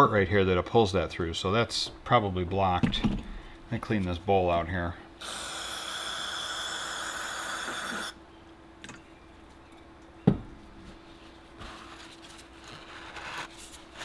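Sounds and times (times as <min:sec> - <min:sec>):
aerosol spray hissing: 0:05.2 - 0:08.2.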